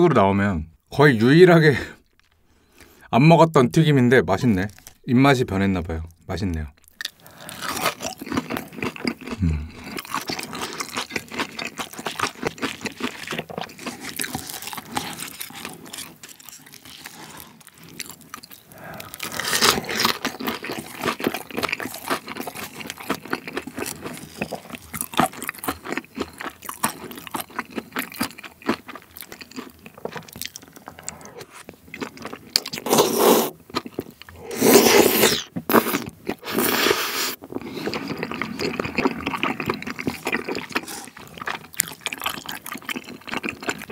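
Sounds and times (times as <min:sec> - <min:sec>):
chewing food: 0:06.7 - 0:34.4, 0:35.4 - 0:43.9
slurping: 0:16.8 - 0:21.0, 0:32.6 - 0:33.6, 0:34.2 - 0:41.6.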